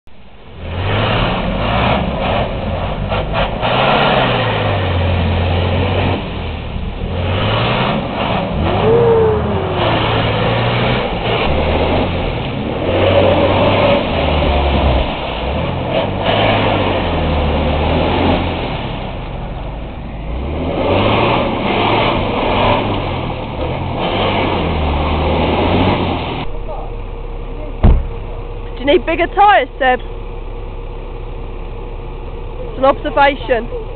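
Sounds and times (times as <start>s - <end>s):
truck engine revving hard: 0.5s - 26.8s.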